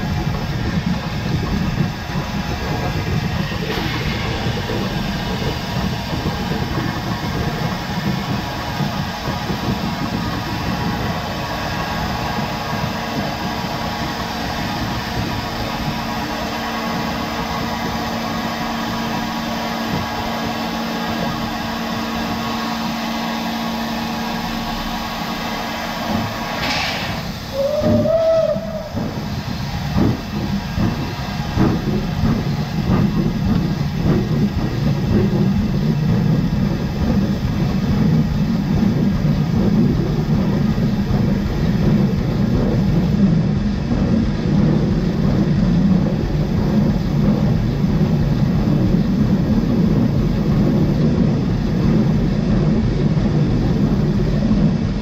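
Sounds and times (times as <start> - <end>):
locomotive exhaust beats: 0.0 - 55.0
steam locomotive hum and hiss: 0.0 - 55.0
steam whistle blast: 26.6 - 29.0.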